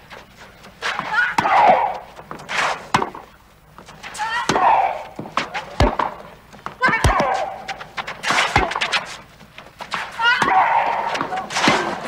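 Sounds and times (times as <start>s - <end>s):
tennis ball struck by rackets: 0.9s - 3.2s, 4.4s - 9.1s.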